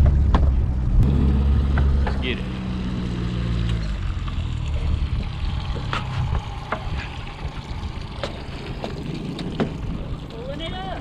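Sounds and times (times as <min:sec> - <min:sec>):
boat motor humming: 0:00.0 - 0:11.0
water: 0:00.0 - 0:11.0
wind: 0:00.0 - 0:11.0.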